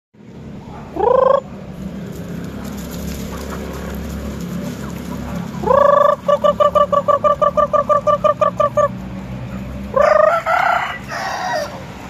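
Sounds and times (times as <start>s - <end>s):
chicken squawk: 1.0s - 1.5s, 4.6s - 9.0s, 9.9s - 11.8s.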